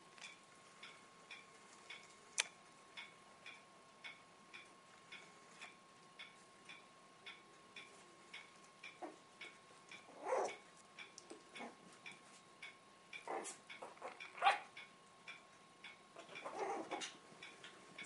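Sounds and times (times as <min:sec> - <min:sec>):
steady ticking: 0:00.2 - 0:18.0
puppies yipping and growling: 0:10.1 - 0:10.6, 0:13.3 - 0:14.7, 0:16.2 - 0:17.2.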